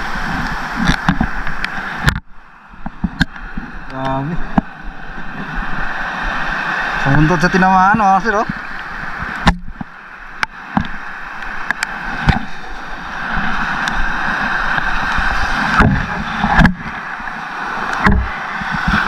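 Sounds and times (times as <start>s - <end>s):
sea water sloshing: 0.0s - 19.0s.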